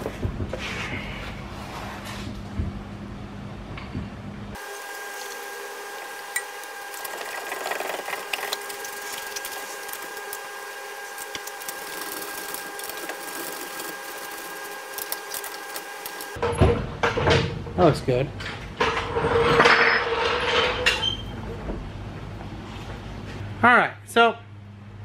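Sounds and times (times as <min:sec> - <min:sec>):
steady high hum: 0:00.0 - 0:16.4.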